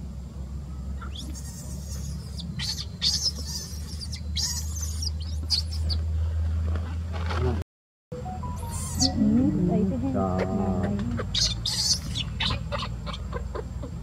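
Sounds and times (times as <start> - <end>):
baby monkey squeaking: 1.0 - 6.0, 8.5 - 9.3, 10.3 - 14.0
steady low rumble: 8.5 - 14.0.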